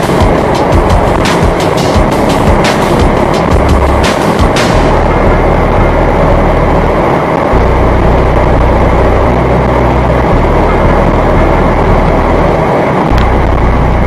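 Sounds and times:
car engine droning: 0:00.0 - 0:14.0
road noise: 0:00.0 - 0:14.0
wind noise: 0:00.0 - 0:14.0.

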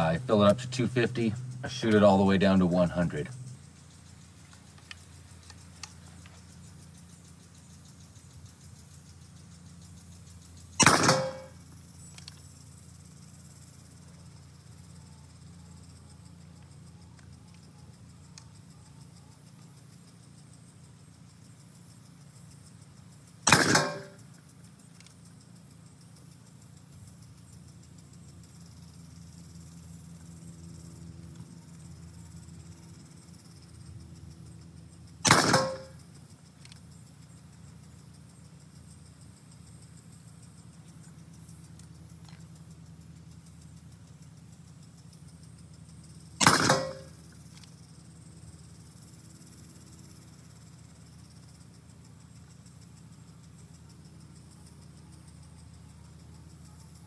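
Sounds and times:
faint low hum: 0:00.0 - 0:57.0
high insect buzz: 0:00.0 - 0:57.0
air pistol shot: 0:10.8 - 0:11.6, 0:23.5 - 0:24.2, 0:35.2 - 0:36.0, 0:46.4 - 0:47.2.

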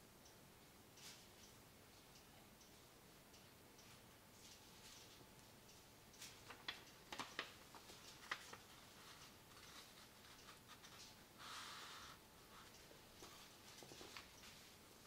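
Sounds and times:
paper taps and crinkles: 0:06.2 - 0:11.2
paper rustling: 0:06.3 - 0:11.9.

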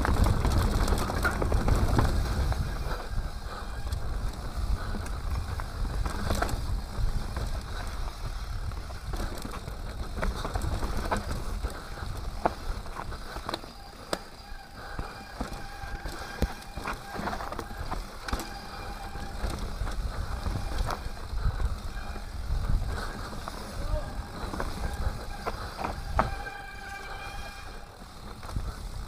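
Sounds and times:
bike rattles and knocks: 0:00.0 - 0:29.0
tyres crunching over dirt: 0:00.0 - 0:29.0
wind rumble on camera: 0:00.0 - 0:29.0
thin steady whine: 0:10.1 - 0:29.0.

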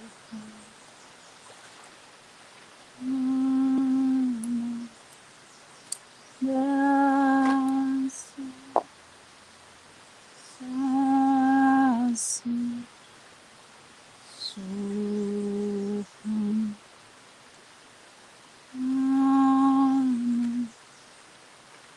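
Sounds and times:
person humming held notes: 0:00.0 - 0:00.8, 0:03.0 - 0:05.0, 0:06.4 - 0:08.9, 0:10.5 - 0:12.9, 0:14.4 - 0:16.8, 0:18.7 - 0:20.7.

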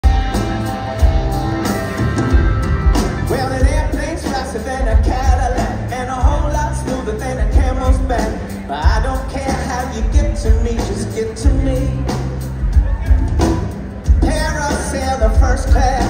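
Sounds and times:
pop-rock band playing: 0:00.0 - 0:16.0
man singing: 0:03.2 - 0:12.5, 0:14.1 - 0:16.0.

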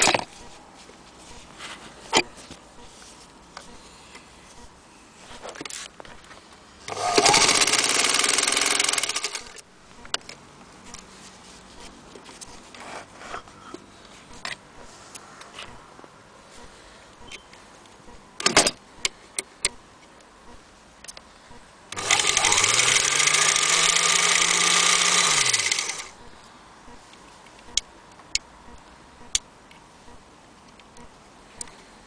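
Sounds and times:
sewing machine motor running: 0:06.9 - 0:09.6, 0:22.0 - 0:26.2.

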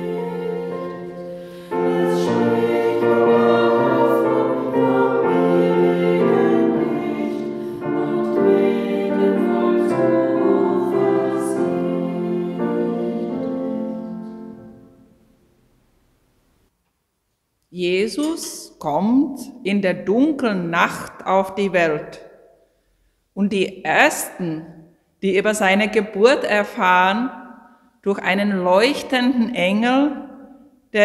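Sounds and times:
voices singing with music: 0:00.0 - 0:14.0.

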